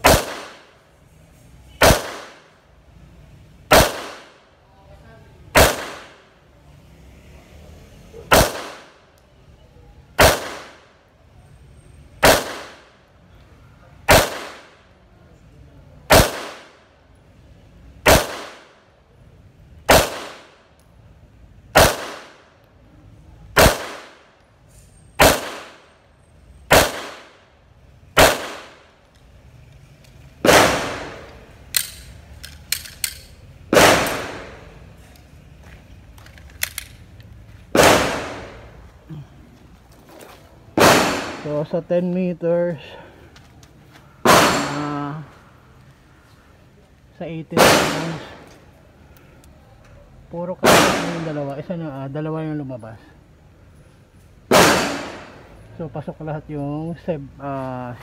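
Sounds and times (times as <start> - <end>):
pistol shots: 0.0 - 0.7, 1.8 - 2.6, 3.7 - 4.4, 5.5 - 6.3, 8.3 - 9.0, 10.2 - 10.9, 12.2 - 12.9, 14.1 - 14.8, 16.1 - 16.8, 18.0 - 18.8, 19.8 - 20.6, 21.7 - 22.4, 23.6 - 24.3, 25.2 - 25.9, 26.7 - 27.4, 28.2 - 28.9, 30.4 - 32.1, 32.8 - 34.8, 37.7 - 38.7, 40.8 - 41.7, 44.2 - 44.9, 47.6 - 48.5, 50.6 - 51.4, 54.5 - 55.4.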